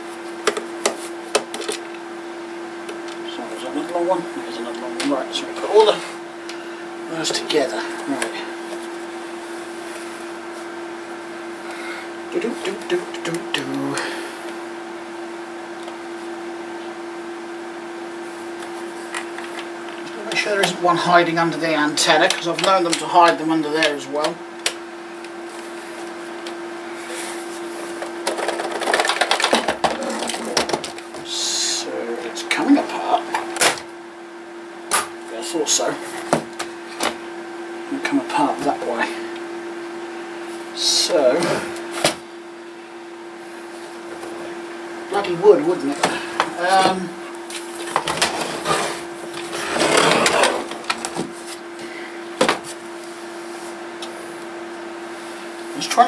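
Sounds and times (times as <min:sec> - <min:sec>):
steady hum: 0:00.0 - 0:56.0
plastic scraping rub: 0:28.4 - 0:31.0, 0:47.8 - 0:51.1.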